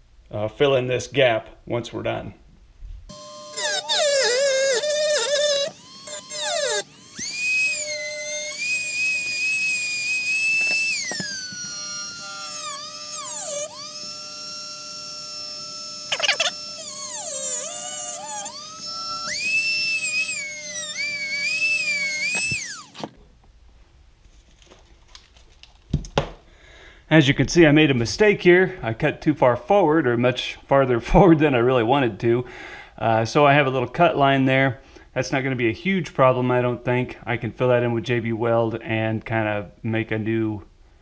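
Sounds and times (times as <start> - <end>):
rotary tool cutting metal: 3.1 - 23.1.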